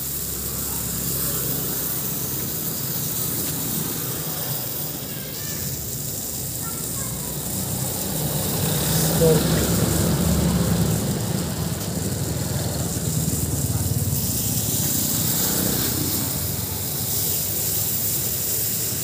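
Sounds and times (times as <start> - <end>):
burning smoke paste hissing: 0.0 - 19.0
motorcycle engine passing: 0.0 - 19.0.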